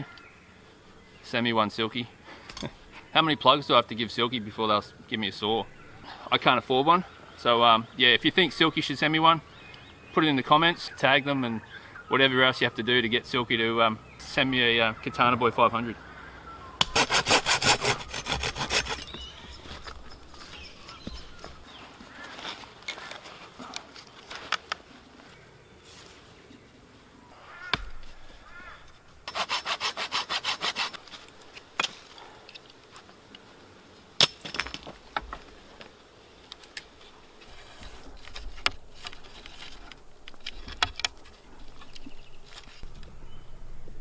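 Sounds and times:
saw cutting branch: 16.8s - 19.4s, 29.2s - 31.3s
branches knocking and clicking: 18.3s - 24.9s.

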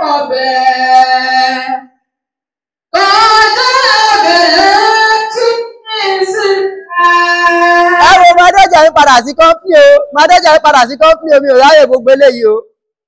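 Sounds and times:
person singing: 0.0s - 2.0s, 3.0s - 9.0s.

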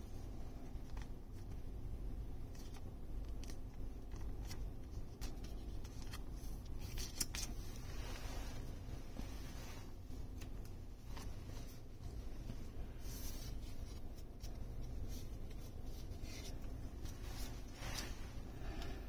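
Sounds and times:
low steady hum: 0.0s - 19.0s
plastic card sleeve scrapes and ticks: 2.4s - 8.7s.

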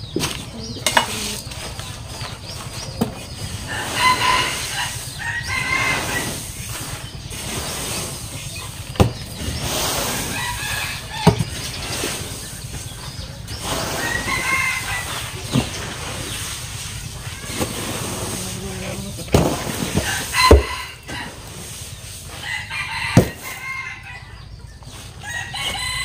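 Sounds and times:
chickens clucking: 0.0s - 26.0s
rooster crowing: 3.6s - 6.5s, 14.0s - 15.5s, 20.0s - 21.5s, 22.3s - 24.4s, 25.2s - 26.0s
shovel scraping plastic barrel: 5.7s - 12.6s, 13.5s - 22.4s.

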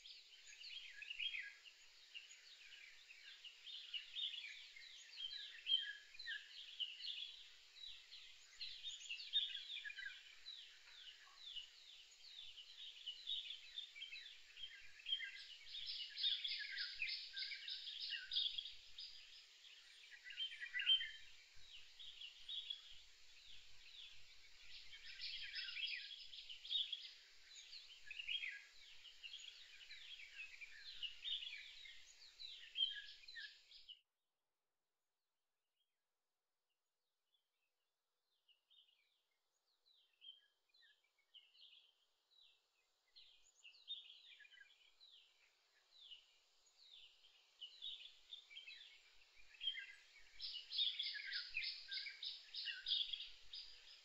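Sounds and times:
songbirds chirping and singing: 0.0s - 34.0s, 43.2s - 54.0s.

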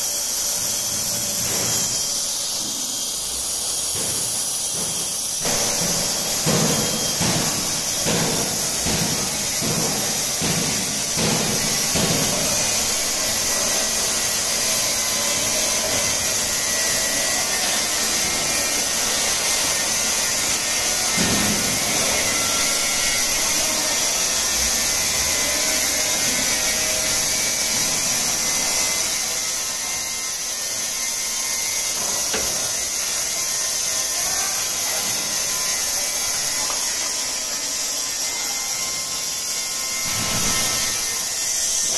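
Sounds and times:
machine noise: 0.0s - 41.9s.

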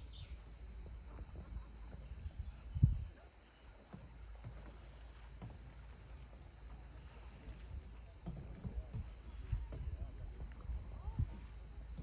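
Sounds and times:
small bird singing: 0.0s - 0.4s, 2.0s - 9.4s.

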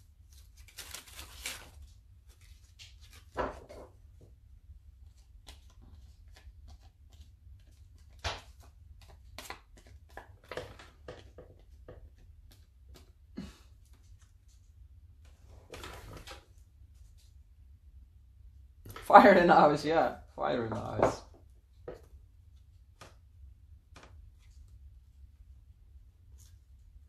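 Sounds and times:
paper rustling: 0.2s - 4.0s, 5.0s - 13.2s, 15.4s - 17.1s.

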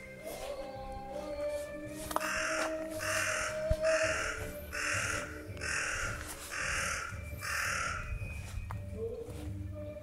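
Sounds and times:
crow cawing: 2.2s - 8.1s.

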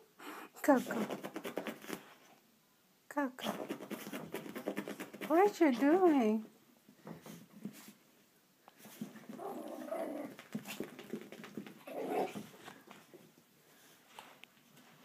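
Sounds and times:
small dogs growling in play: 9.2s - 12.6s.

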